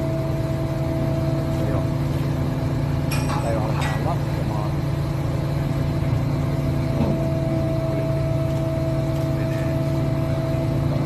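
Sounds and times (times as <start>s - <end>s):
crane engine running: 0.0s - 11.0s
steady whine: 0.0s - 11.0s.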